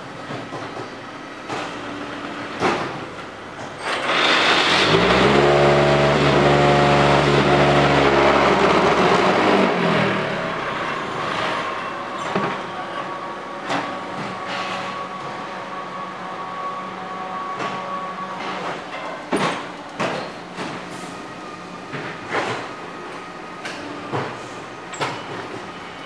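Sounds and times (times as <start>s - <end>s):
deep machine hum: 4.7s - 12.2s.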